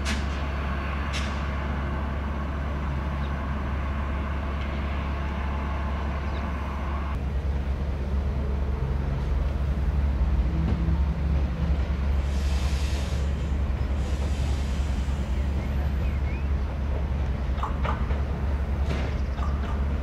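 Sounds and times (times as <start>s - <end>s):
diesel train humming: 0.0s - 20.0s
hiss: 12.2s - 15.6s.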